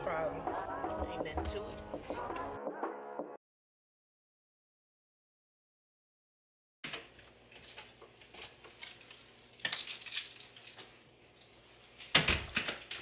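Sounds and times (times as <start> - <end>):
keys jingling: 7.5 - 11.0.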